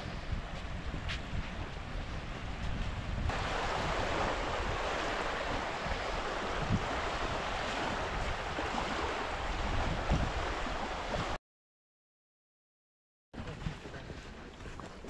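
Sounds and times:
small waves lapping on shore: 0.0 - 11.4
wind bumps on microphone: 0.0 - 11.4.

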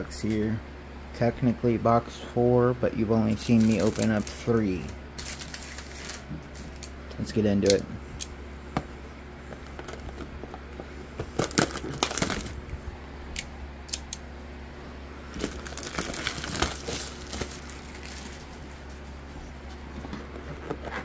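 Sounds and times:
plastic wrap crinkling: 3.3 - 6.9, 11.2 - 12.6, 15.3 - 21.0.

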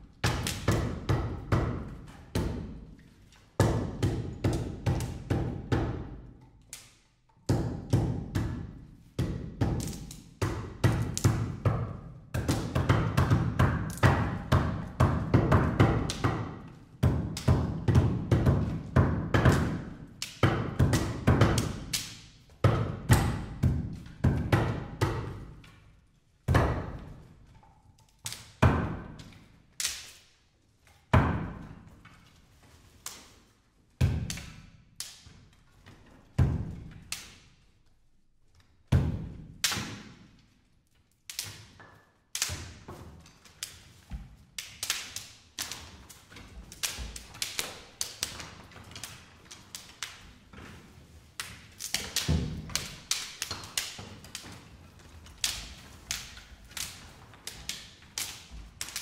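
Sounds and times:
sharp wooden stick cracks: 0.2 - 0.8, 6.4 - 7.2, 9.8 - 10.3, 19.6 - 20.4, 21.0 - 22.4, 28.0 - 28.6, 29.2 - 30.4, 34.3 - 35.4, 37.1 - 37.6, 39.6 - 40.3, 41.1 - 43.9, 44.5 - 50.2, 51.4 - 54.6, 55.4 - 59.0.

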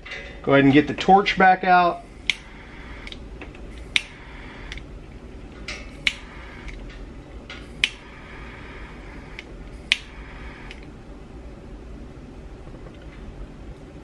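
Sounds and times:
low steady hum: 0.0 - 14.0
sharp clicks: 2.2 - 3.2, 3.8 - 4.9, 5.7 - 6.9, 7.8 - 10.9.

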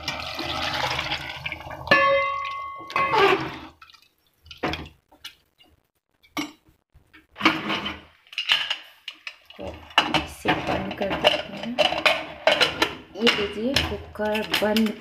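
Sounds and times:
pot lid clattering: 1.9 - 3.6, 9.9 - 13.6
metal ladle scraping pot: 1.9 - 3.8, 7.4 - 14.9.

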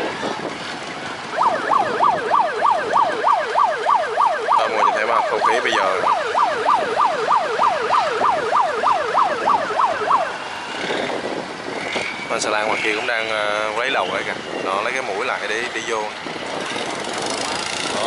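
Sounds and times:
electronic siren yelping: 1.3 - 10.5.

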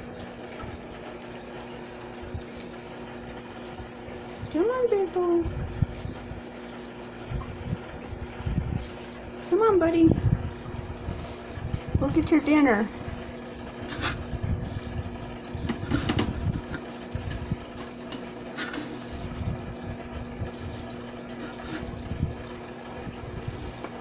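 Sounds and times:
running water: 0.0 - 24.0
small motor humming: 13.0 - 24.0.

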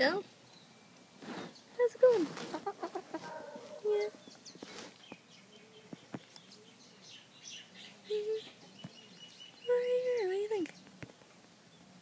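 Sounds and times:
chickens calling softly: 1.6 - 6.7.

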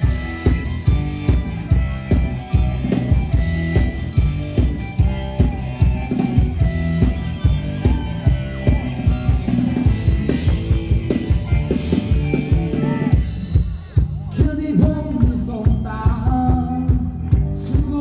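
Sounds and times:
drum kit beat: 0.0 - 18.0
live band dance music: 0.0 - 18.0.

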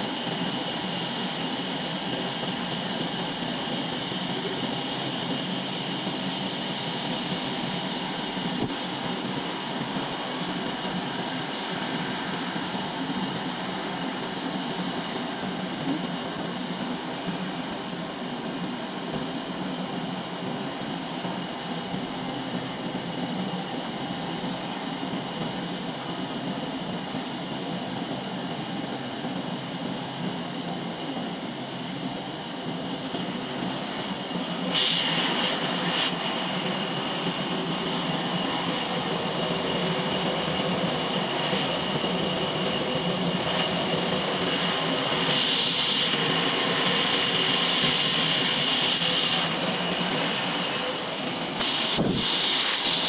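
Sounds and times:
machine hum: 0.0 - 53.0
saw blade hissing whine: 32.7 - 53.0.

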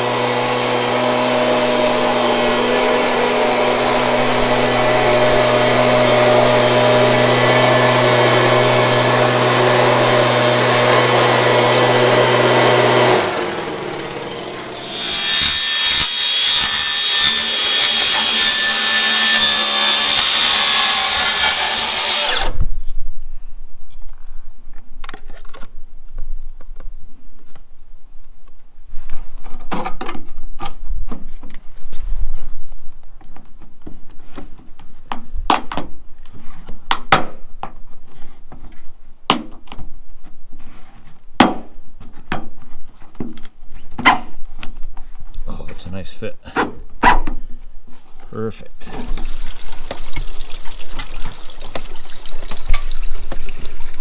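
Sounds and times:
rainwater trickling in a gutter: 48.9 - 54.0.

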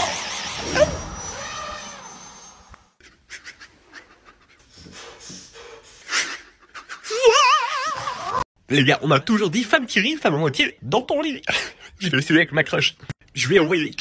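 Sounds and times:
rushing noise with high whine: 0.0 - 3.0
man panting whimpers: 4.2 - 7.4.

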